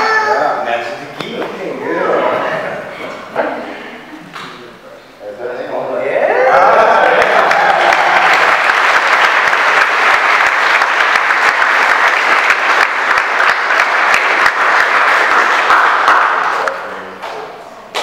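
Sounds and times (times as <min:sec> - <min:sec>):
large crowd clapping: 0:06.8 - 0:18.0.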